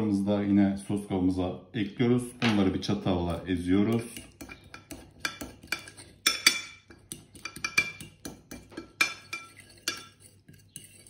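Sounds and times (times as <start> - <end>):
fork clinking on ceramic bowl: 3.9 - 11.0.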